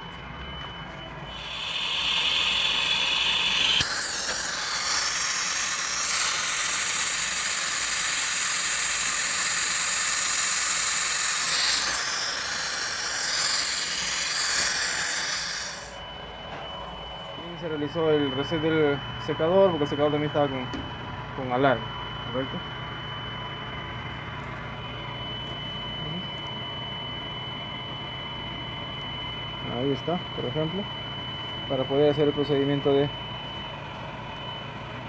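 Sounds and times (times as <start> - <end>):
compressed air hissing: 1.3 - 16.0.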